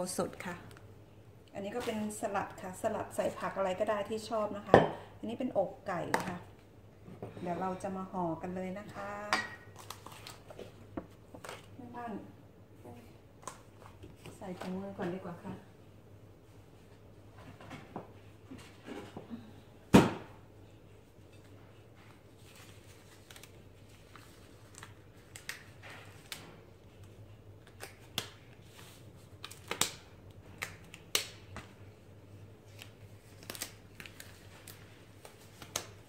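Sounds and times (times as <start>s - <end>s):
plastic gloves crinkling: 9.0s - 11.9s, 21.9s - 36.0s.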